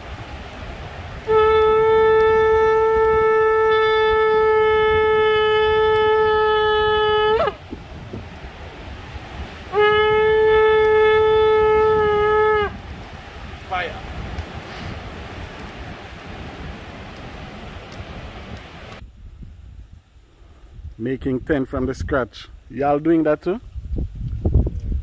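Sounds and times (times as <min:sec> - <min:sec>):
shofar blasts: 0:01.0 - 0:07.9, 0:09.0 - 0:14.2.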